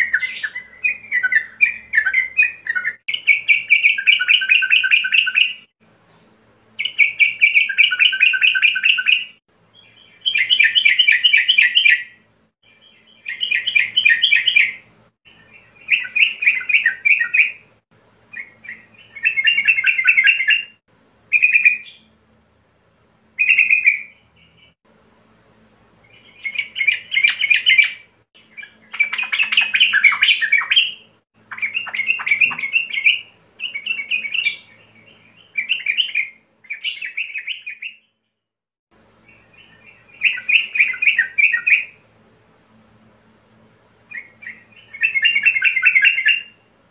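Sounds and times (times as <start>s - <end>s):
bird singing chattering phrases: 0.0s - 5.6s, 26.2s - 37.9s
short single bird notes: 32.2s - 33.0s.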